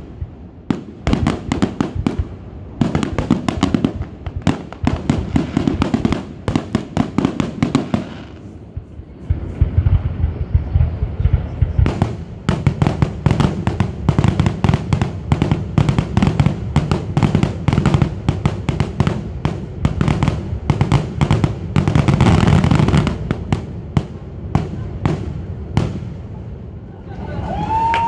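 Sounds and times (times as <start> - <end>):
fireworks bangs and crackles: 0.0 - 26.9
low rumble: 8.3 - 12.6.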